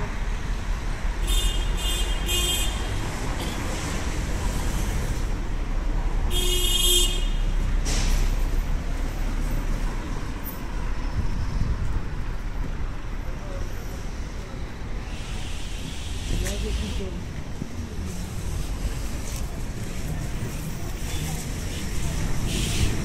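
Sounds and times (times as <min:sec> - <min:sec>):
low rumble of cars: 0:00.0 - 0:23.0
car horns tooting: 0:06.3 - 0:07.6.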